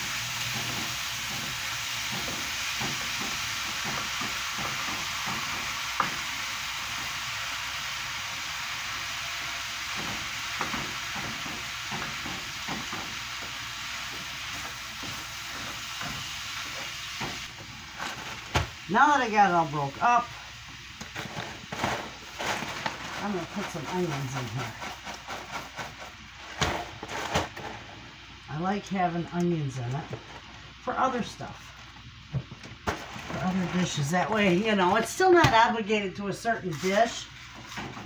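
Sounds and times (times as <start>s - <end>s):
ground beef sizzling in skillet: 0.0s - 26.5s.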